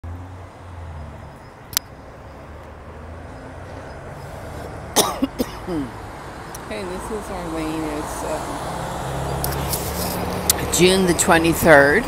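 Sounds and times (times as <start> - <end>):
street traffic hum: 0.0 - 12.0
person coughing: 5.0 - 6.0.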